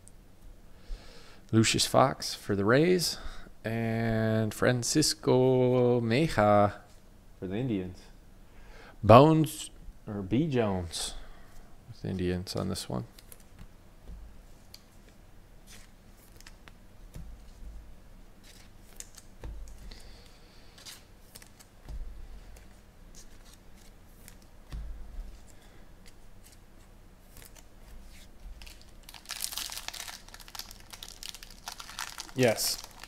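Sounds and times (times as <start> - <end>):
foil wrapper crinkling and tearing: 28.5 - 33.0.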